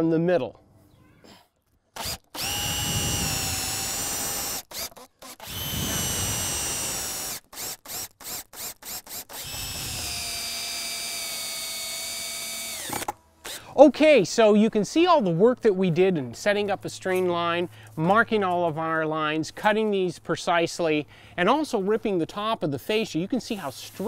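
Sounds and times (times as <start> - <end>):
cordless drill motor whining: 2.0 - 13.7.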